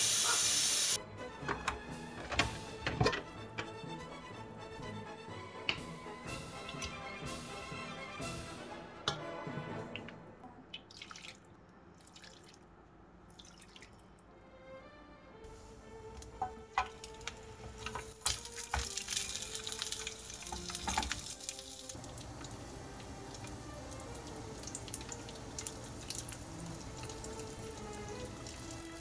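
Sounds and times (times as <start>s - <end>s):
cooking hiss: 0.0s - 1.0s, 15.5s - 29.0s
soft background music: 1.0s - 10.8s, 11.6s - 29.0s
utensils and cookware clinking: 1.5s - 3.8s, 5.6s - 7.2s, 16.1s - 21.7s.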